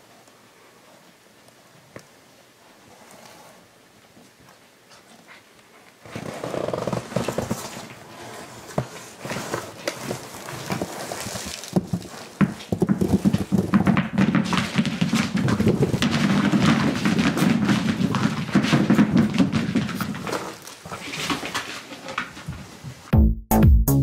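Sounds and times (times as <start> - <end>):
tennis balls bouncing on wood floor: 11.7 - 20.5.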